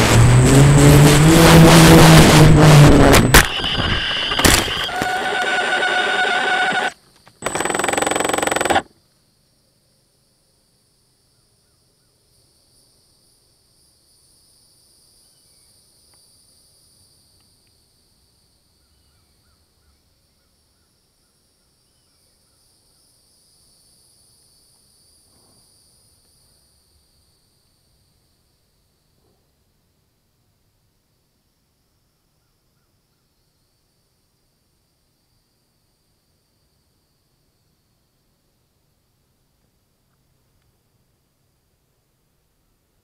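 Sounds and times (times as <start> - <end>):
rc plane motor whining: 2.6 - 8.9.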